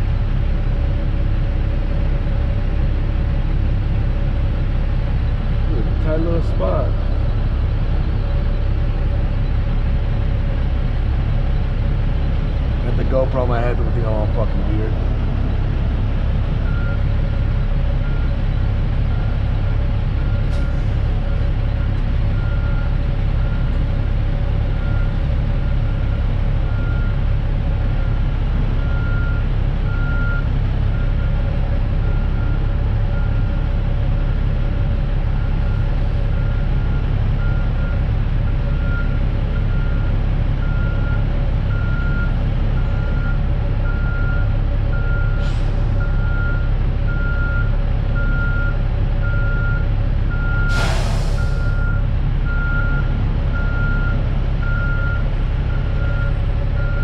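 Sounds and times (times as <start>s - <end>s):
diesel engine rumble: 0.0s - 57.0s
truck reverse alarm beeping: 16.6s - 18.4s, 19.1s - 23.8s, 24.8s - 27.3s, 28.8s - 31.4s, 32.0s - 33.6s, 36.3s - 38.1s, 38.7s - 57.0s.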